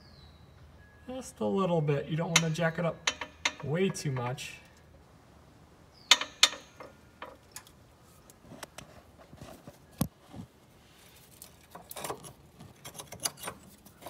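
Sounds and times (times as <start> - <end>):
sharp metal clicks and clinks: 2.3 - 4.8, 6.1 - 7.7.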